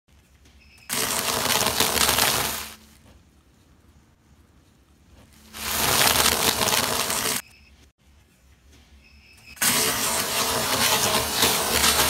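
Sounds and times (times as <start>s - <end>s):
buns crunching under car tyre: 0.9s - 2.8s.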